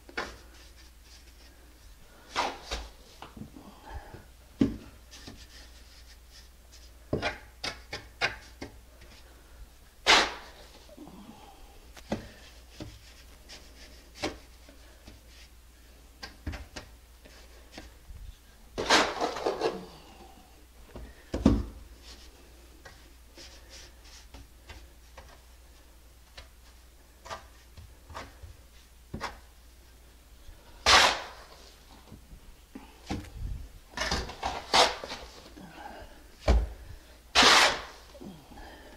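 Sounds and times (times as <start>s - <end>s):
trowel scraping wet mortar: 30.8s - 31.6s, 37.3s - 38.0s.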